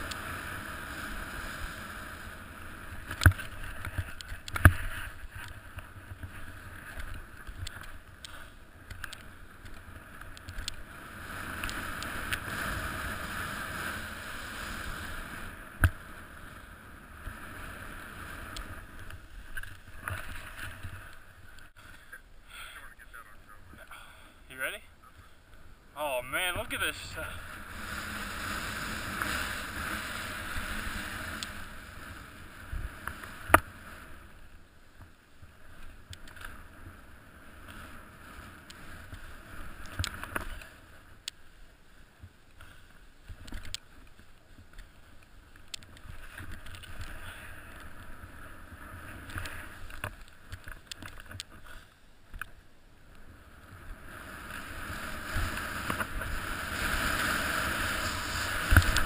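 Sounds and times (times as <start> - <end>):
faint clicks: 3.1 - 10.8, 39.8 - 41.4, 42.2 - 48.1, 49.1 - 53.2
snowboard swishing through snow: 11.0 - 21.5, 26.4 - 34.3, 54.0 - 59.0.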